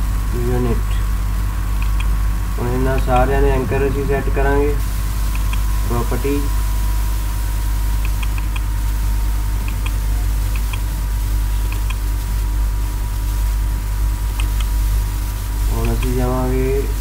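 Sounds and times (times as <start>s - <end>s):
low electrical hum and hiss: 0.0s - 17.0s
computer mouse clicking: 1.8s - 2.2s, 5.3s - 5.6s, 8.0s - 8.7s, 9.6s - 10.9s, 11.7s - 12.0s, 14.4s - 14.8s.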